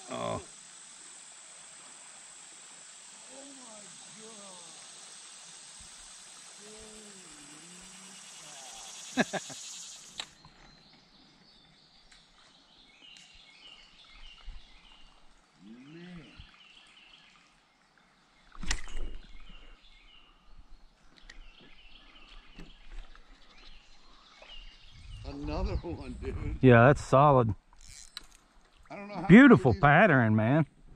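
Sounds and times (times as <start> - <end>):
creekside ambience: 0.0 - 30.9
birds chirping: 7.6 - 28.0.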